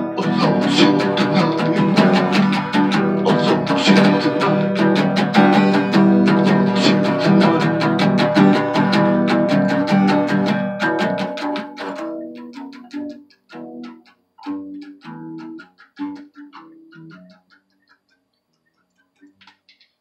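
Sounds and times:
guitar picking single notes: 0.0s - 18.0s
faint clicks: 17.1s - 20.0s.

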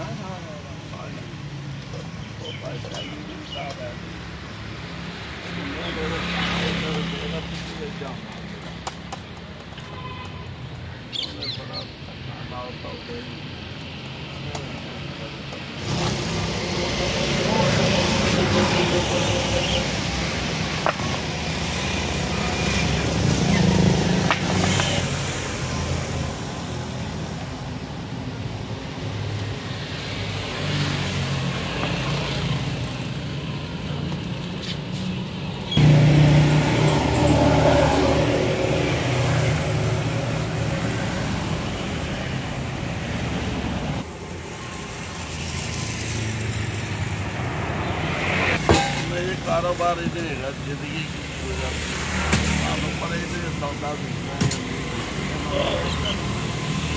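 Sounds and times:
passing vehicle engines: 0.0s - 56.9s.

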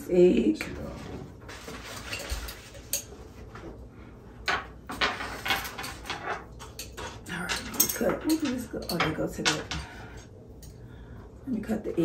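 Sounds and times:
knife and fork scraping a plate: 1.5s - 3.2s.

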